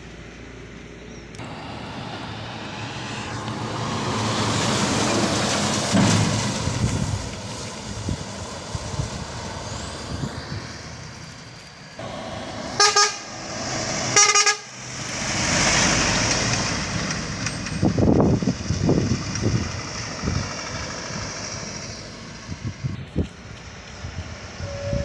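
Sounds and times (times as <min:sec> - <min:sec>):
truck driving past: 0:00.0 - 0:25.0
truck horn blasts: 0:12.0 - 0:14.8, 0:24.6 - 0:25.0.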